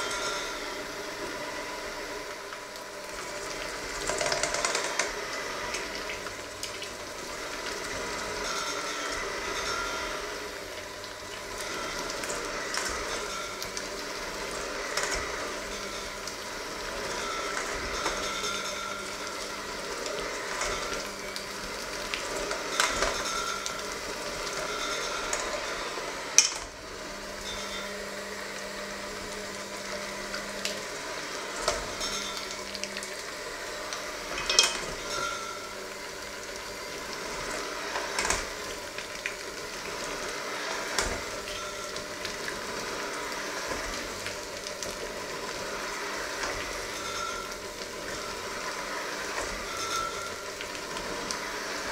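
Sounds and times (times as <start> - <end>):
electric mixer running: 0.0 - 51.9
beaters clinking against metal bowl: 34.3 - 35.7.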